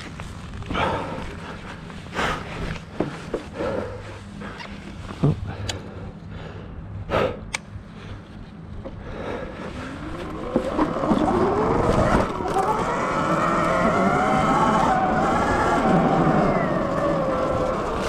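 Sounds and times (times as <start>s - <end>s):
electric motor whine: 9.7s - 18.0s.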